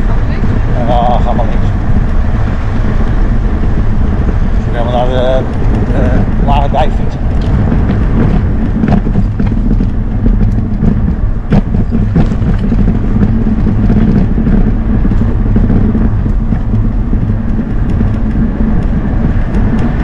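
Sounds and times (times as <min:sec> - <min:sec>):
motor hum: 0:00.0 - 0:20.0
tyres rumbling on bricks: 0:00.0 - 0:20.0
sharp knocks from bumps: 0:07.3 - 0:20.0.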